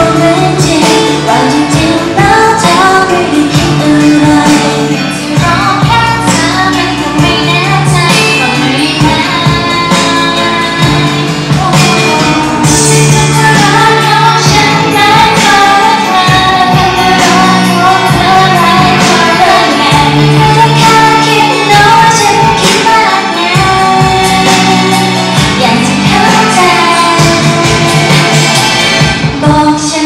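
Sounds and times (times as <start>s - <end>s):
pop backing track: 0.0s - 30.0s
woman singing into microphone: 0.0s - 30.0s.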